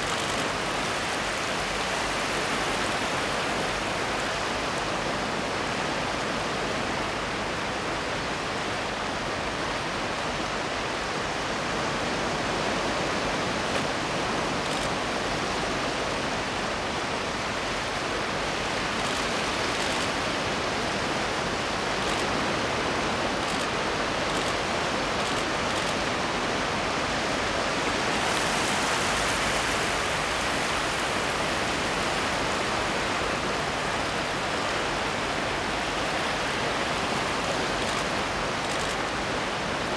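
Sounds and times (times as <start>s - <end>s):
surf washing over rocky shore: 0.0s - 39.9s.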